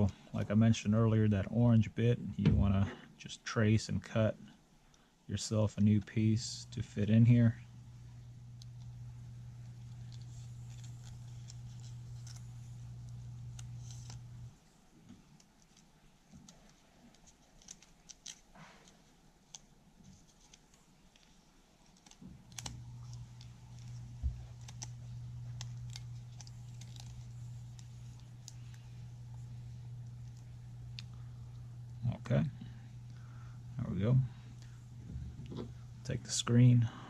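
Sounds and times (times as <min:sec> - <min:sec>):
low steady hum: 0:00.0 - 0:37.0
plastic parts clicking and rustling: 0:15.2 - 0:23.2.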